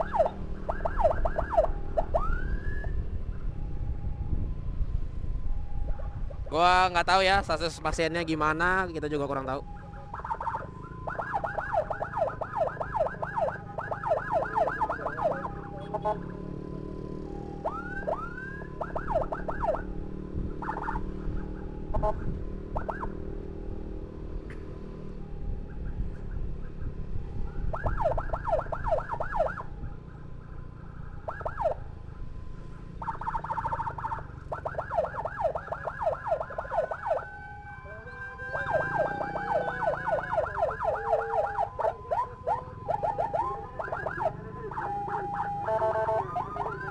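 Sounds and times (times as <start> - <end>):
ambulance sirens yelping: 0.0 - 46.9
traffic rumble: 0.0 - 46.9
motorcycle engine: 9.6 - 46.9.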